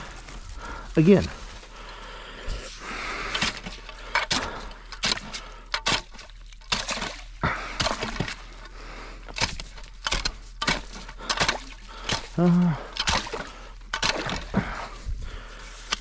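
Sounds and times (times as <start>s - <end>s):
slushy water: 1.0s - 16.0s
ice breaking and crunching: 3.3s - 8.6s, 9.3s - 15.1s
ice chisel striking ice: 3.4s - 7.2s, 9.4s - 12.4s, 13.0s - 14.6s.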